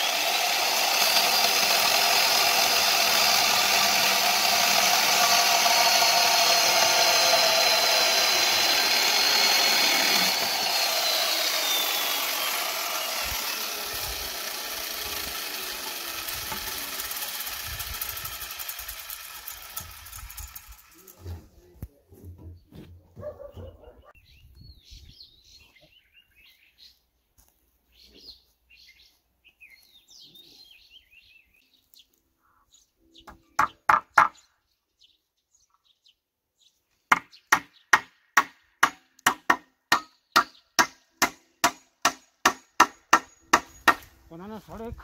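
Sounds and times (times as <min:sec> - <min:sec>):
birds chirping: 0:22.5 - 0:38.0
hammer nailing wood: 0:33.6 - 0:34.4, 0:37.1 - 0:44.1.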